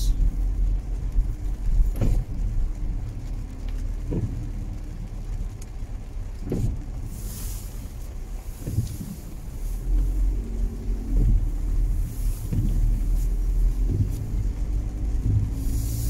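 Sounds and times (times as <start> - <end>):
car engine and road rumble: 0.0 - 16.0
windscreen blower: 6.4 - 16.0.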